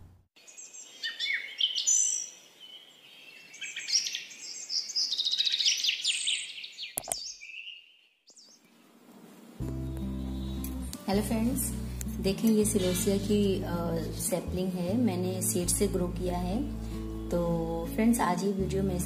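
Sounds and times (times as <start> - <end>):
songbirds chirping: 0.4 - 19.0
sharp click: 7.0 - 7.2.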